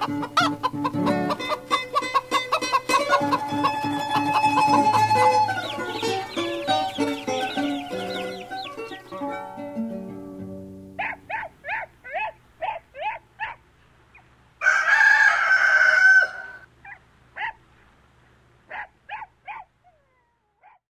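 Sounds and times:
hen clucking: 0:00.0 - 0:17.6, 0:18.7 - 0:20.8
domra and guitar notes: 0:00.9 - 0:11.0
rooster crowing: 0:02.9 - 0:09.0, 0:14.6 - 0:16.7.

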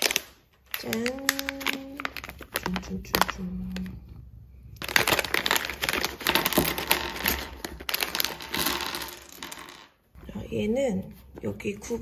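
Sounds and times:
packaging crumpling and rustling: 0:00.0 - 0:04.1, 0:04.7 - 0:09.3.

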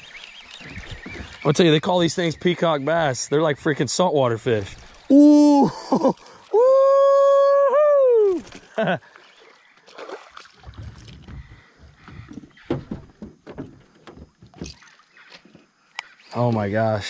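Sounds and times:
fish splashing at surface: 0:09.8 - 0:11.4
knocks and thumps on boat hull: 0:10.6 - 0:14.8.

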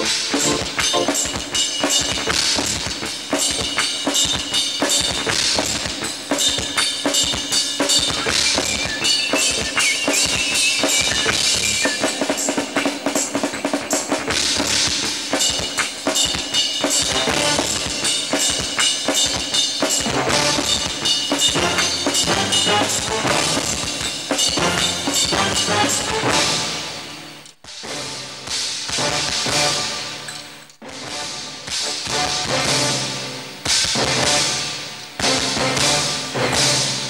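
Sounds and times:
music with held tones: 0:00.0 - 0:26.7
fast drum kit playing: 0:00.0 - 0:37.0.

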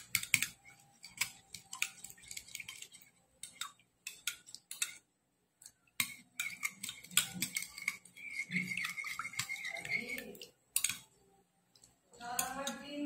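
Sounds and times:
metal spoon clinking in ceramic bowl: 0:12.2 - 0:12.8.

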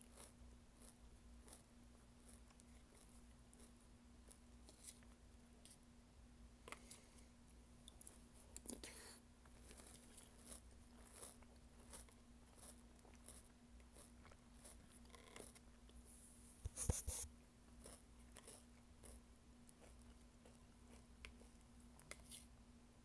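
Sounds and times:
crunching and chewing cereal: 0:00.0 - 0:05.1, 0:07.9 - 0:16.0, 0:17.7 - 0:22.5
faint steady hum: 0:00.0 - 0:23.0.

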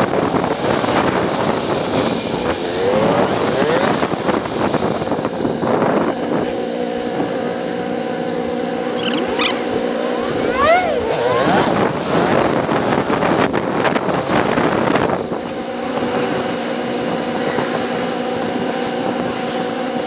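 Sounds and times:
motorcycle engine revving: 0:01.4 - 0:05.2, 0:06.6 - 0:15.0.

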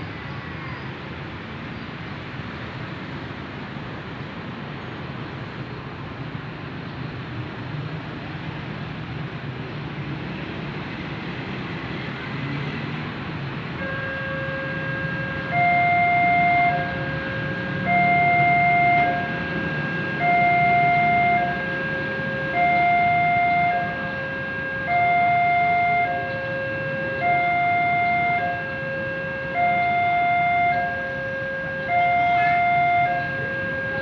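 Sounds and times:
level crossing warning alarm: 0:13.8 - 0:34.0.

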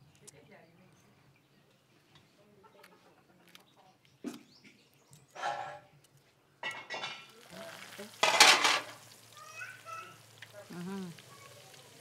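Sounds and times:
people's voices: 0:09.4 - 0:12.0.

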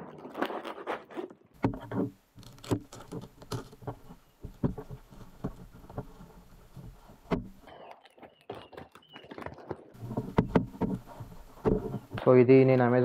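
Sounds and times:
cardboard packaging tearing: 0:02.4 - 0:03.8.

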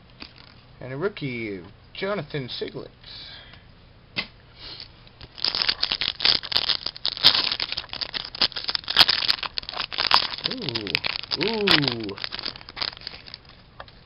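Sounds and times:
wrapper crinkling and tearing: 0:05.2 - 0:13.6.

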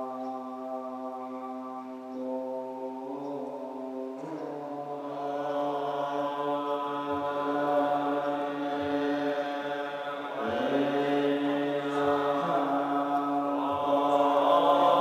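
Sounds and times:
monks chanting in unison: 0:00.0 - 0:15.0.

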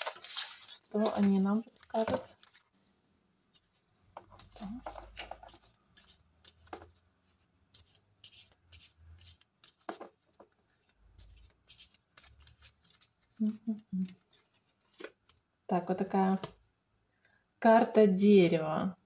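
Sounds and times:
cards being shuffled: 0:00.0 - 0:02.7, 0:03.6 - 0:15.5.

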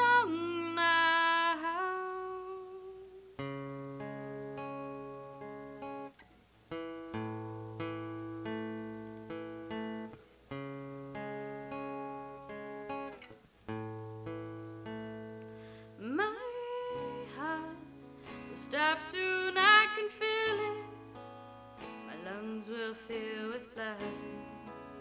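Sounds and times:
person singing: 0:00.0 - 0:03.5, 0:16.0 - 0:21.1, 0:21.9 - 0:25.0
acoustic guitar picking: 0:00.0 - 0:25.0.

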